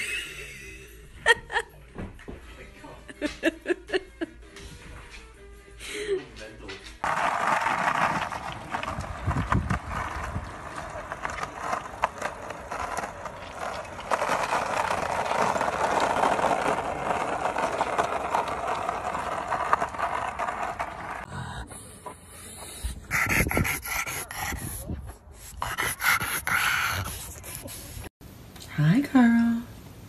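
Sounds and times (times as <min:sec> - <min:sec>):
skateboard wheels rolling on asphalt: 0:07.0 - 0:21.3.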